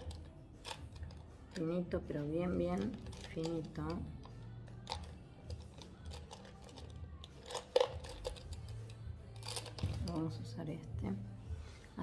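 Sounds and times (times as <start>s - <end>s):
makeup brushes clicking and knocking: 2.6s - 10.3s.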